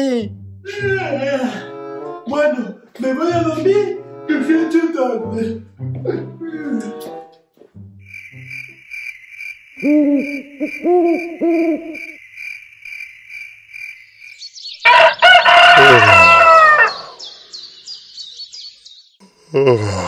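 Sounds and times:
high chirping pulse: 0:08.0 - 0:13.2
owl hooting: 0:09.4 - 0:12.6
rooster crowing: 0:09.8 - 0:12.2, 0:14.8 - 0:17.3.

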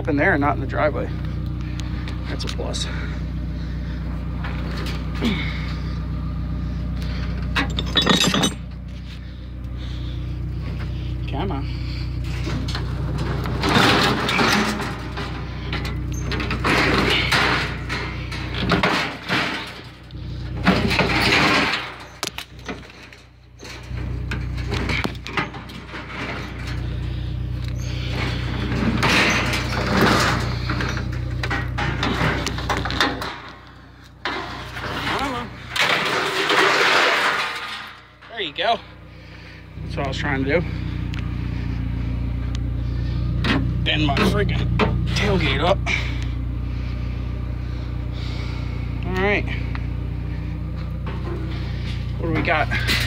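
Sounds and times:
steady low hum: 0:00.0 - 0:53.0
metal grill clinking and rattling: 0:07.5 - 0:08.8, 0:12.3 - 0:38.8, 0:50.9 - 0:53.0.

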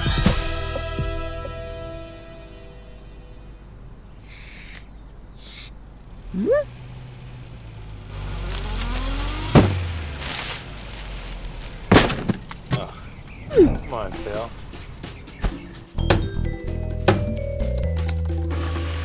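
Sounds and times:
low vehicle-like rumble: 0:00.4 - 0:17.9
short bursts of hiss: 0:04.2 - 0:05.8.

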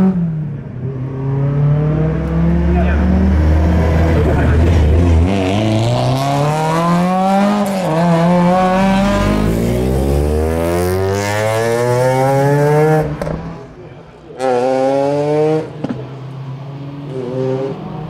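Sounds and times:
race car engine accelerating: 0:00.9 - 0:13.8, 0:14.4 - 0:18.0.

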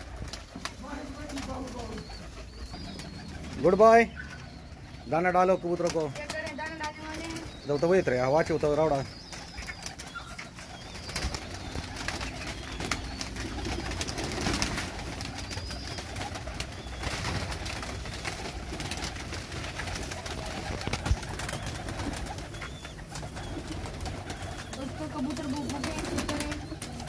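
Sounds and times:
pigeon wings flapping: 0:00.0 - 0:03.6, 0:05.8 - 0:07.6, 0:09.0 - 0:27.0
pigeons cooing: 0:00.0 - 0:27.0.

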